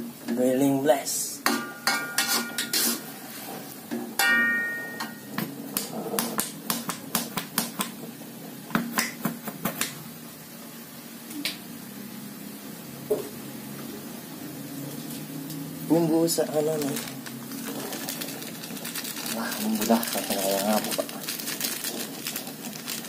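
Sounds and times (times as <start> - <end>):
metal spatula scraping a wok: 1.8 - 3.6.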